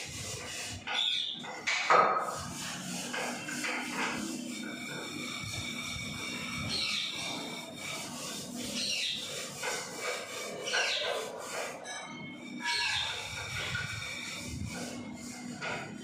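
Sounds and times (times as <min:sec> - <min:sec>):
parakeets calling: 0:05.9 - 0:08.0, 0:08.6 - 0:09.6, 0:10.5 - 0:11.3, 0:12.6 - 0:14.2.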